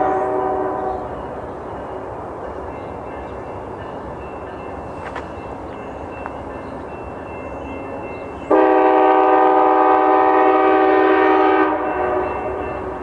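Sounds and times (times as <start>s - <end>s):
locomotive air horn blast: 0.0s - 1.0s, 8.5s - 12.6s
low rumble of train: 0.0s - 13.0s.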